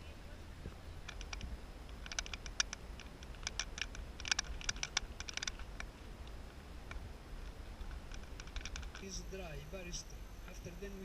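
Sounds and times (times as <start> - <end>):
low steady rumble: 0.0 - 11.0
sharp clicks and crackles: 0.6 - 9.2.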